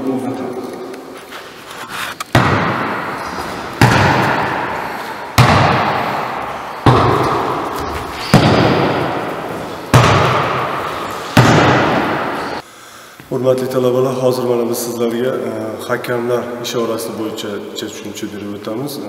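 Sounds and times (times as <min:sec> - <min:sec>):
volleyball slaps echoing in gym: 0:02.3 - 0:12.6.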